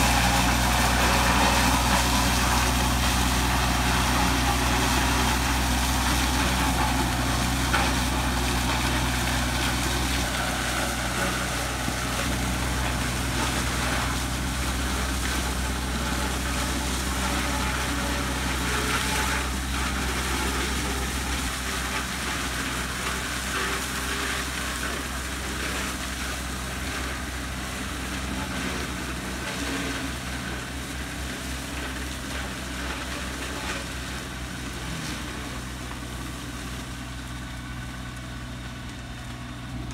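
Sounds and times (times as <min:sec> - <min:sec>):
tractor engine running: 0:00.0 - 0:39.9.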